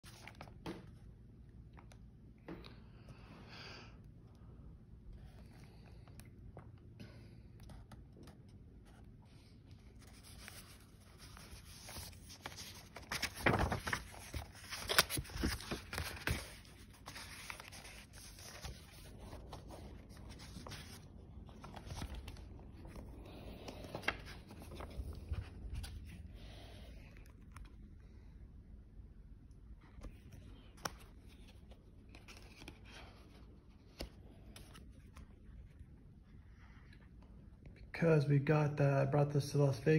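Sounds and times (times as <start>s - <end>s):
book pages rustling: 0.0s - 1.1s, 5.1s - 28.0s, 29.7s - 36.0s.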